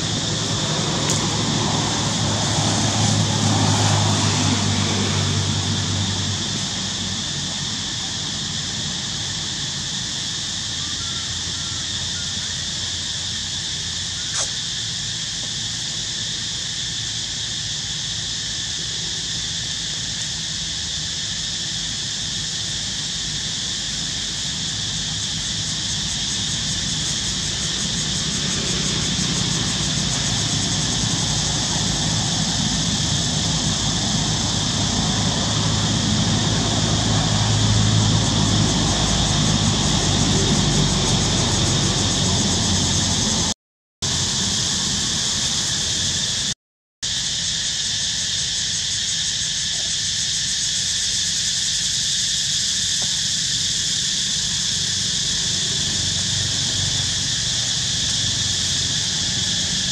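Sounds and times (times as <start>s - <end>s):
low engine rumble: 0.0s - 17.5s, 23.6s - 46.6s
high-pitched hiss: 0.0s - 59.9s.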